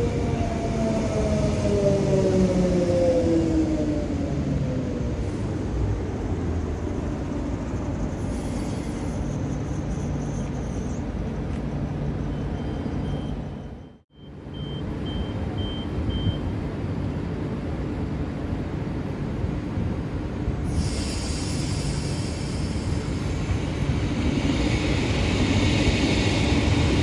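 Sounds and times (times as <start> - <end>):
short high beeps: 12.3 - 16.5
electric train pulling out: 20.6 - 27.0.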